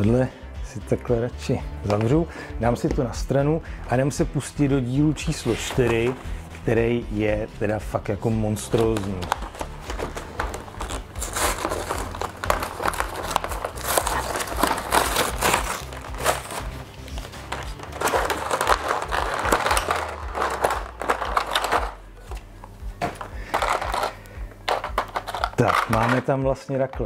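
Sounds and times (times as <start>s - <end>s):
background music: 0.0s - 27.0s
packaging crinkling and rustling: 8.5s - 22.4s, 23.0s - 26.3s.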